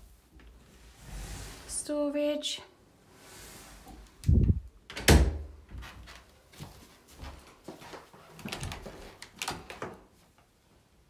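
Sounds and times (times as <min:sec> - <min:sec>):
cupboard door thudding shut: 0:05.0 - 0:05.5.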